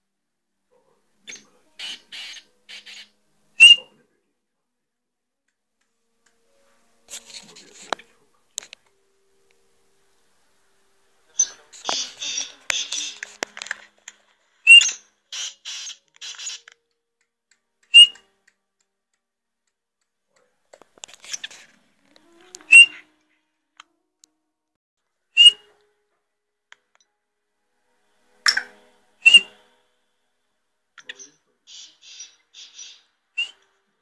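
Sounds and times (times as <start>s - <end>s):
soft hissing: 0.8s - 3.9s, 6.5s - 16.8s, 31.0s - 33.7s
bird giving sharp high calls: 1.3s - 3.9s, 11.4s - 13.3s, 14.6s - 16.7s, 17.9s - 18.2s, 22.5s - 23.1s, 25.4s - 25.7s, 28.5s - 29.6s, 31.2s - 33.6s.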